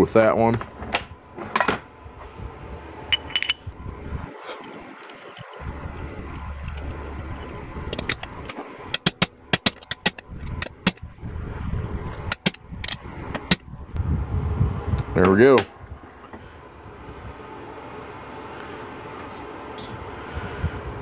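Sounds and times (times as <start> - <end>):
metal clinks: 3.1 - 3.8.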